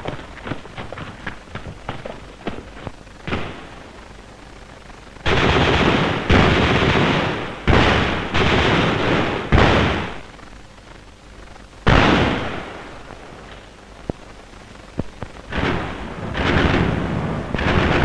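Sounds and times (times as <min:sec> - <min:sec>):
gunfire: 0:00.0 - 0:03.8, 0:05.2 - 0:10.3, 0:11.9 - 0:13.0, 0:15.5 - 0:18.0.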